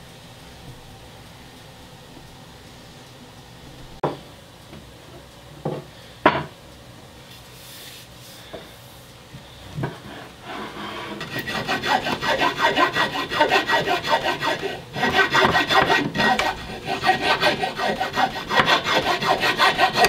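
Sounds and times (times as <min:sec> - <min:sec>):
rasp filing wooden handle: 0:09.8 - 0:20.0.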